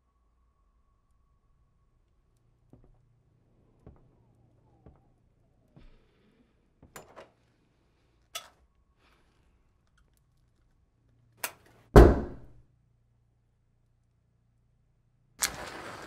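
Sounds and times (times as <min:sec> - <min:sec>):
loud thud: 0:12.0 - 0:12.5.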